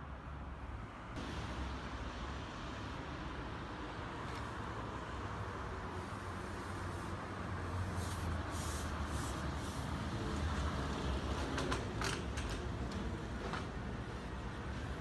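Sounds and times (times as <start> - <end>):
trolleybus electric hum: 0.0 - 15.0
tyres hissing on wet road: 1.2 - 11.8
sharp hisses and clicks: 5.9 - 10.3.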